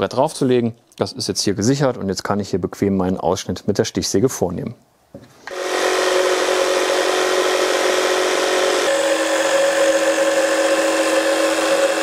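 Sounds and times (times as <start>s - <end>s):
electric jigsaw cutting wood: 5.4s - 12.0s.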